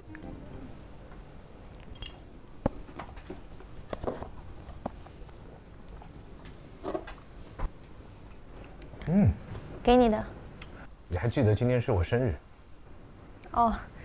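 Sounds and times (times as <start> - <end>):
chopsticks and tableware clicking: 1.8 - 2.3.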